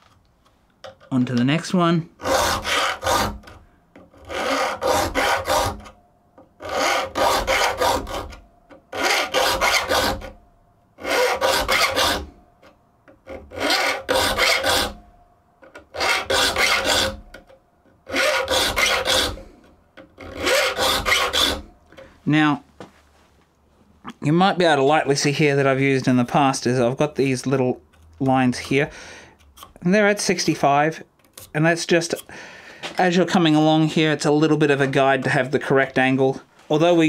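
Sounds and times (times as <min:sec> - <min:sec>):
file rasping on saw teeth: 0:02.2 - 0:05.9, 0:06.6 - 0:10.3, 0:11.0 - 0:12.3, 0:13.2 - 0:15.0, 0:15.9 - 0:17.3, 0:18.1 - 0:19.4, 0:20.2 - 0:21.6.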